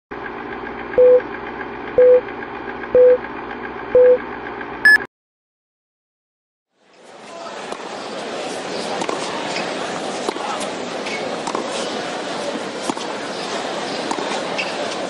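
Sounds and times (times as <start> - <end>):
low beeps: 4.0 - 4.2, 4.9 - 5.1
short high beep: 4.9 - 5.1.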